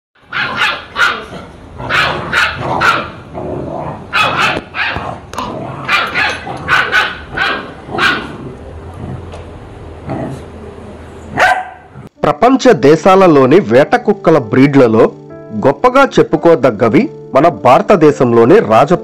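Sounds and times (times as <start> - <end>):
puppy barking high-pitched: 0.2 - 3.2, 4.1 - 5.2, 5.8 - 8.4, 11.3 - 12.0.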